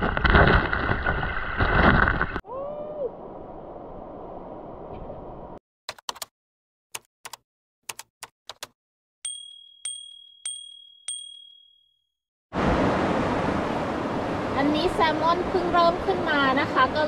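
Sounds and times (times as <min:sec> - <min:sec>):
sharp typing-like clicks: 0:05.9 - 0:06.3, 0:07.0 - 0:08.8
notification bell dinging: 0:09.3 - 0:12.0
stream water rushing: 0:12.6 - 0:17.0.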